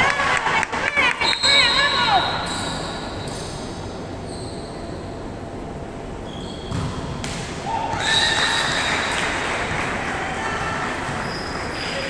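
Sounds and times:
sneakers squeaking on wooden court: 1.3s - 5.1s, 6.2s - 7.2s, 11.1s - 11.8s.

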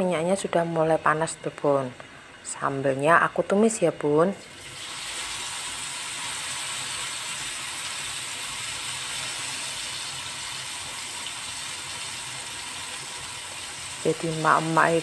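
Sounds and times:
food sizzling in hot oil: 4.4s - 15.0s.

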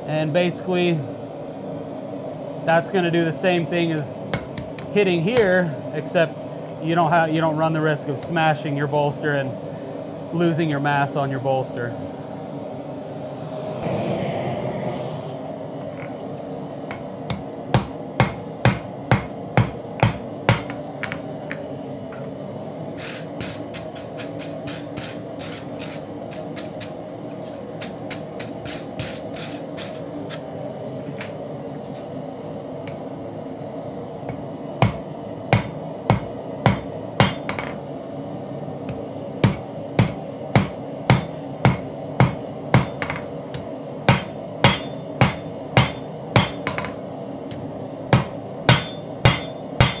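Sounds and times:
hammer striking hot steel on anvil: 2.7s - 3.0s, 4.3s - 5.7s, 16.9s - 21.7s, 34.3s - 37.8s, 38.9s - 50.0s.

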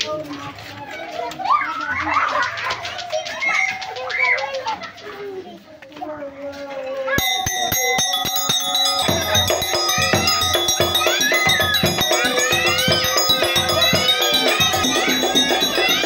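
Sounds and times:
hand drums beating: 7.2s - 16.0s
wavering high melody: 7.2s - 16.0s.

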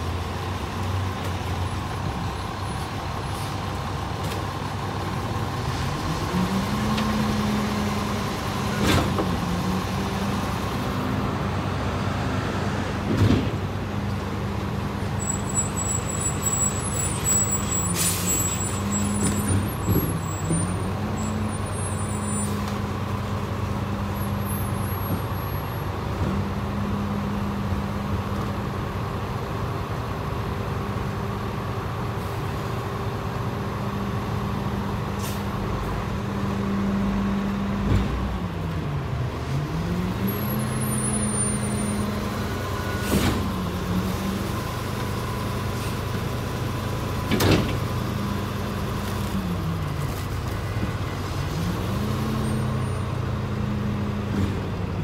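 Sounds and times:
bus engine drone: 0.0s - 55.0s.

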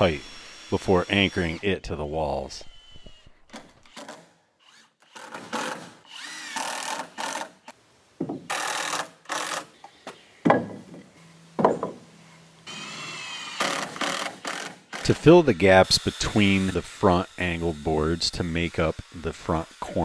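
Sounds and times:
power drill driving screws: 0.0s - 1.7s, 2.4s - 7.8s, 8.5s - 9.7s, 12.7s - 20.0s.

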